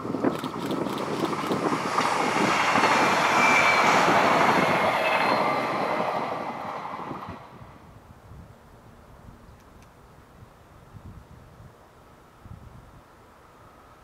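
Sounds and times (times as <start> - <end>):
train wheels rolling on rails: 0.0 - 7.8.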